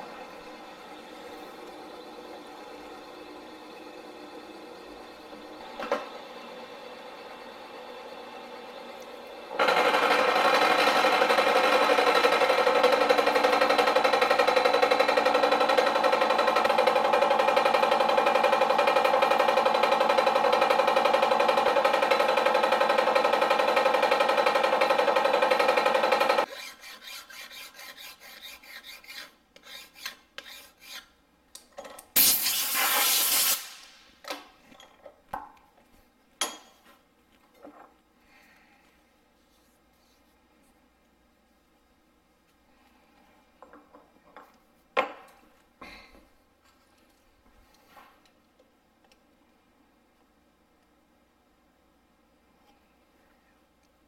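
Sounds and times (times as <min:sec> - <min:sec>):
loud rushing hiss: 0:32.2 - 0:34.1.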